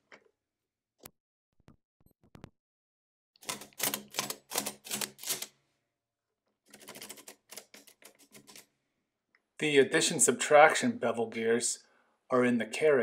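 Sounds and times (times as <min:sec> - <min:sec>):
mechanical calculator keys clacking: 0:03.4 - 0:05.5, 0:06.7 - 0:08.7.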